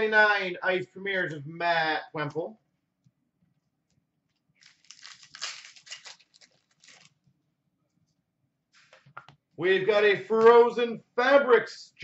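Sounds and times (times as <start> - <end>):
trading cards rustling: 4.6 - 7.2.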